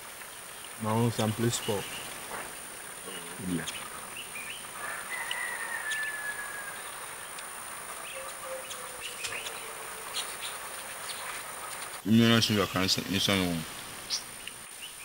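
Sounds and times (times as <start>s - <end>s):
high insect drone: 0.9s - 11.8s
bird-like call: 3.0s - 12.0s.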